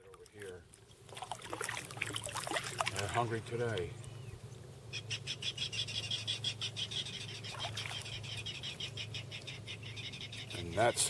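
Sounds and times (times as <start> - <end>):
rail bird clacking calls: 4.9 - 11.0.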